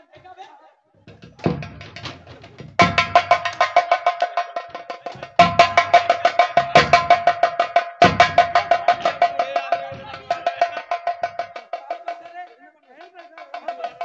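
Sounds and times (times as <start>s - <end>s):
deep drum hits: 1.1s - 4.0s, 5.2s - 11.6s
fast high-tuned drumming: 1.1s - 14.0s.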